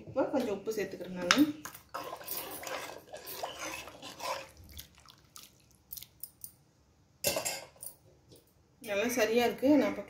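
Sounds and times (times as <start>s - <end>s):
spoon scraping a pan: 1.6s - 4.6s
liquid sloshing in a pan: 1.6s - 6.4s.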